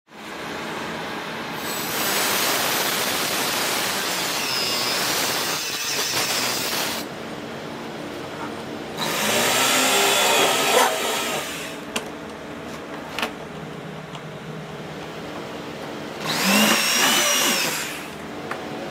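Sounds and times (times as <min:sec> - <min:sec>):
power tool whining on plastic: 0:09.0 - 0:11.8, 0:16.2 - 0:18.2.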